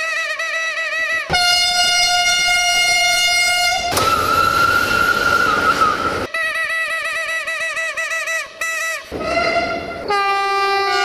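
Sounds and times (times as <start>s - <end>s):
long steady horn blast: 1.3s - 6.3s, 8.6s - 11.0s
warbling train horn: 1.3s - 6.3s, 9.1s - 11.0s
higher-pitched train horn: 9.1s - 11.0s.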